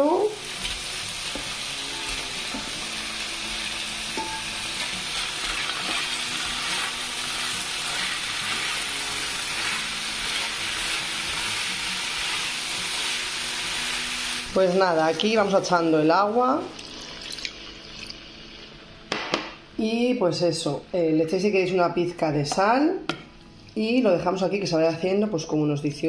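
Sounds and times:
food sizzling in frying pan: 0.0s - 18.9s
spatula scraping pan: 4.2s - 11.5s.

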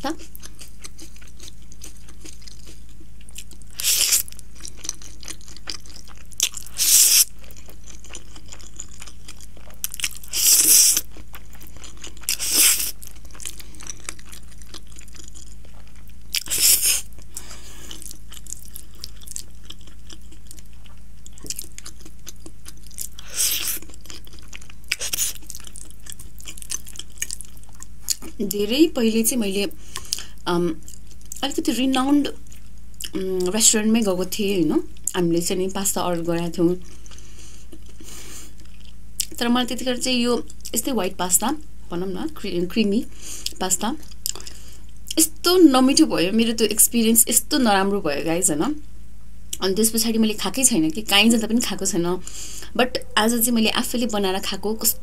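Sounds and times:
steady low hum: 0.0s - 55.0s
slurping and chewing: 0.2s - 28.4s, 43.2s - 44.8s.

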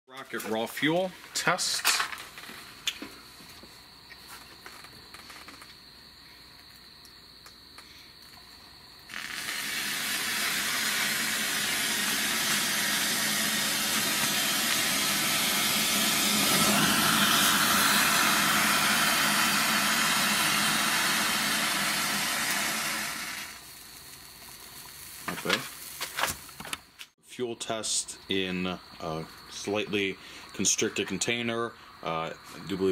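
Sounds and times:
rocket fuel burning with loud hiss: 9.0s - 26.8s.

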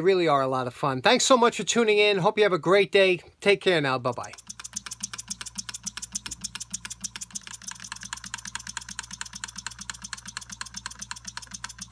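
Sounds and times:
model steam engine ticking: 4.1s - 11.9s.

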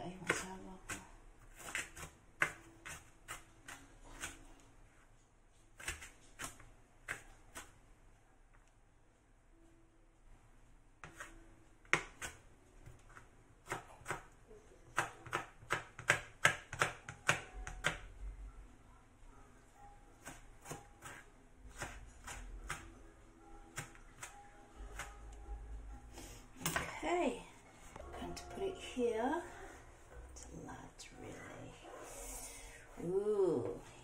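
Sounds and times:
knife chopping on plastic board: 0.2s - 4.4s, 5.8s - 7.7s, 11.0s - 14.3s, 15.0s - 18.0s.

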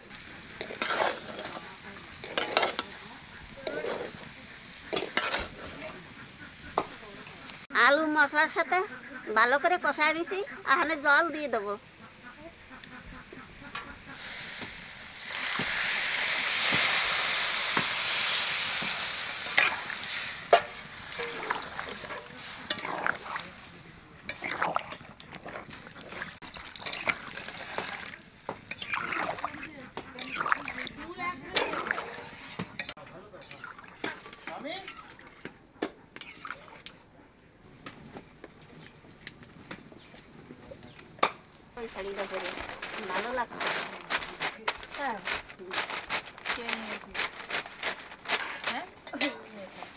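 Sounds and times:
water sizzling in hot oil: 0.0s - 7.7s, 14.0s - 35.2s.

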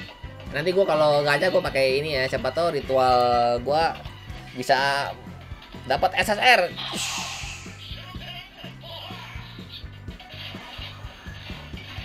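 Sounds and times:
hiss: 7.0s - 7.8s.

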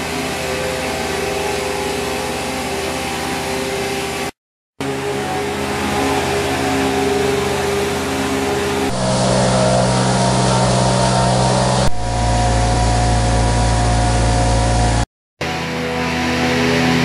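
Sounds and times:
engines droning: 0.0s - 17.0s
straw choppers shredding straw: 4.8s - 15.0s.

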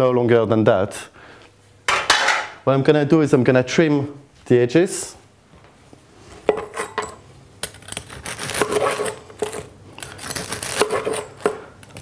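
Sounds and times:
knife cutting crisp wrapper: 7.6s - 12.0s.

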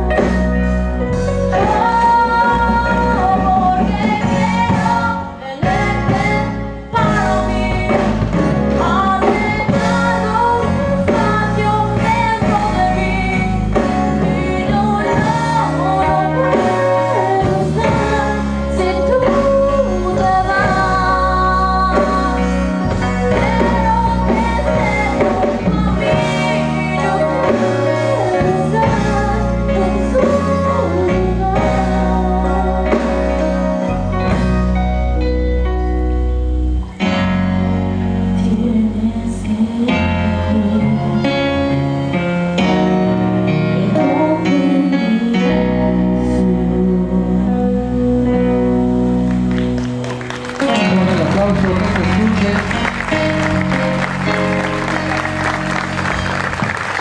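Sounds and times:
instrumental accompaniment with bass: 0.0s - 57.0s
young woman singing: 1.5s - 33.7s, 38.3s - 41.7s, 43.5s - 48.5s.

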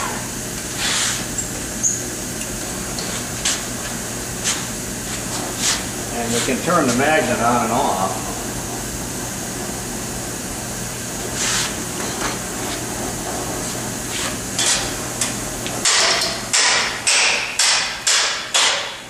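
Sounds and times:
cutting torch hissing: 3.5s - 8.3s.

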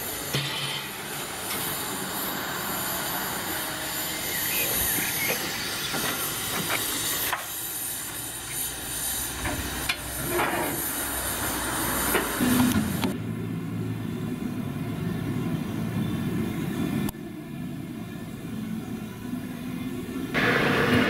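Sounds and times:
steam hissing: 0.0s - 13.1s, 20.3s - 21.0s.

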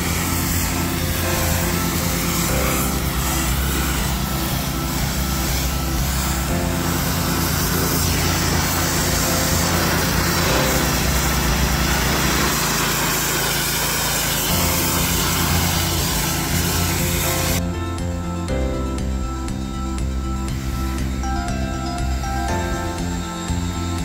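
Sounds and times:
water jet hissing on concrete: 0.0s - 18.4s, 19.0s - 24.0s
pressure washer engine running: 0.0s - 24.0s.

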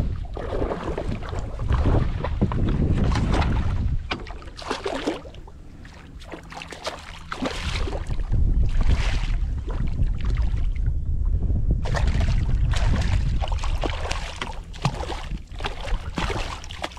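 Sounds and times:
wind buffeting microphone: 0.0s - 16.9s
fish splashing at the surface: 4.3s - 8.2s, 11.9s - 16.9s.

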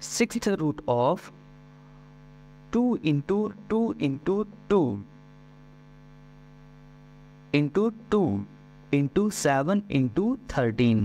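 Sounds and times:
electrical mains hum: 0.0s - 11.0s
man speaking: 2.7s - 5.1s, 7.6s - 11.0s.

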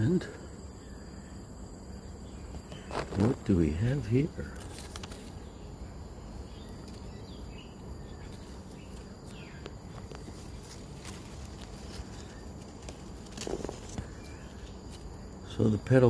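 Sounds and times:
faint bird chirps: 5.3s - 10.8s.

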